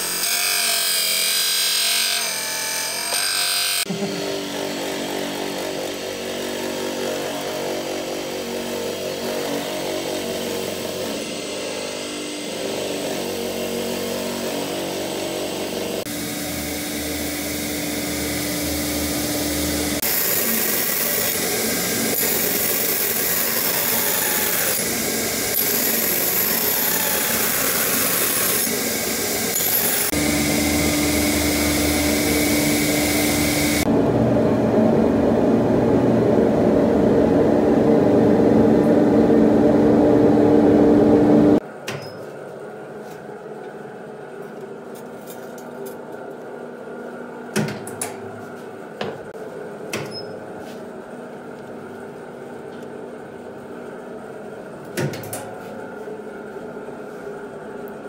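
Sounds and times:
grinding machines humming: 0:03.8 - 0:41.6.

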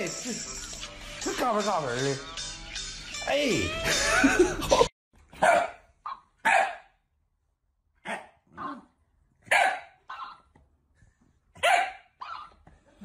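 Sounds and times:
dog barking: 0:05.3 - 0:07.0, 0:08.0 - 0:10.5, 0:11.6 - 0:12.6.

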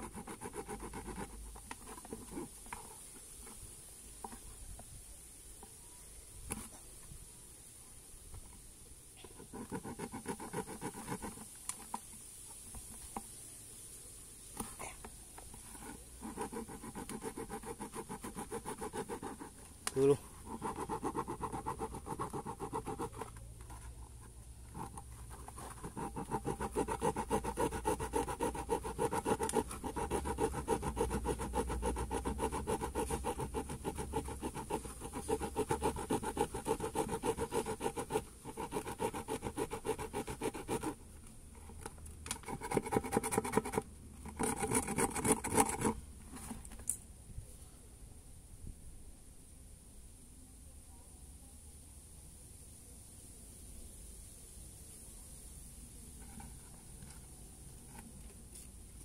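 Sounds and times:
saw cutting plastic bucket: 0:00.0 - 0:02.5, 0:09.4 - 0:11.9, 0:15.6 - 0:23.3, 0:24.7 - 0:41.0, 0:42.4 - 0:46.0.

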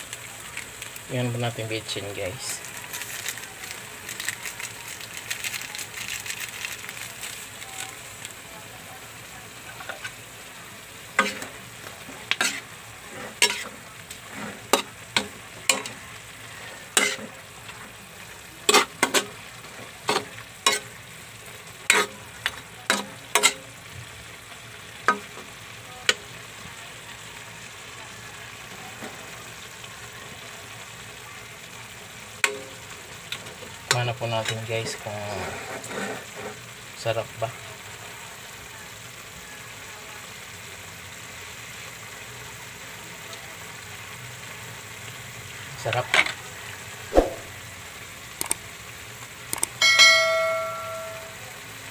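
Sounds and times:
food sizzling in a wok: 0:00.0 - 0:51.9
spatula stirring: 0:11.2 - 0:17.9, 0:18.6 - 0:21.0, 0:21.8 - 0:23.6.

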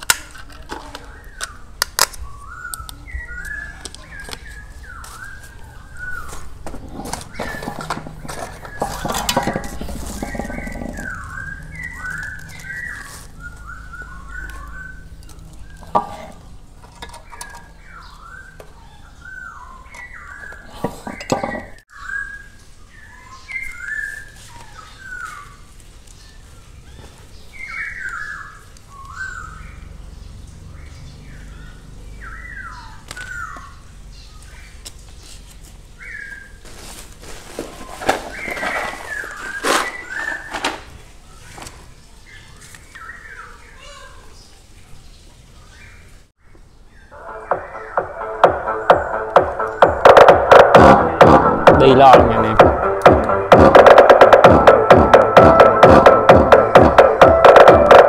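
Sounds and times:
circuit boards and cables clattering: 0:06.7 - 0:11.2
bird chirping whistled notes: 0:09.9 - 0:15.9.

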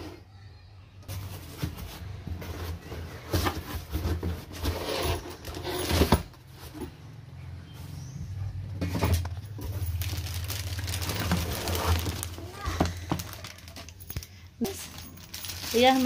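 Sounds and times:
cardboard flaps rustling and scraping: 0:01.1 - 0:07.0, 0:08.8 - 0:13.6.

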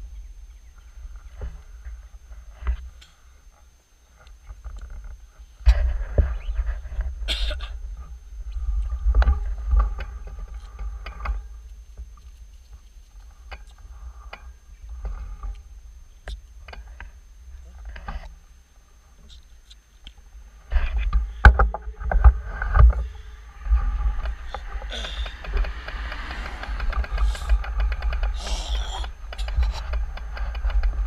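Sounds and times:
wind rumble on microphone: 0:20.7 - 0:31.0.

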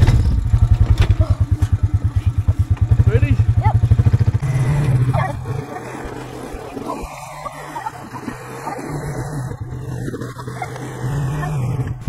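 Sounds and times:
scattered knocks: 0:00.0 - 0:05.5
quad engine running slowly: 0:00.0 - 0:12.0.

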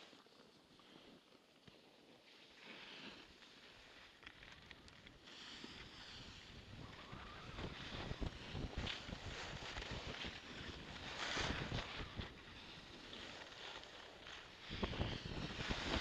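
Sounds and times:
snowboard scraping snow: 0:00.9 - 0:16.0
wind buffeting microphone: 0:06.4 - 0:12.7, 0:14.6 - 0:16.0.

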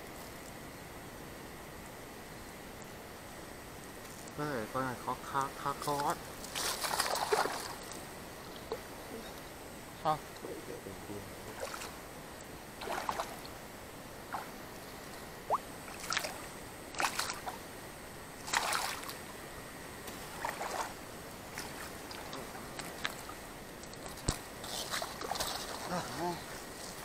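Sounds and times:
water splashing and sloshing: 0:05.3 - 0:09.0, 0:11.4 - 0:12.1, 0:12.7 - 0:13.6, 0:14.2 - 0:17.7, 0:18.4 - 0:19.4, 0:20.0 - 0:27.0.

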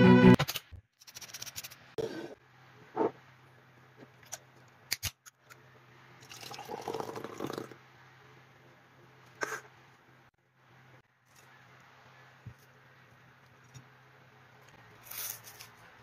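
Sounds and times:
drink pouring into glass: 0:06.2 - 0:07.8.

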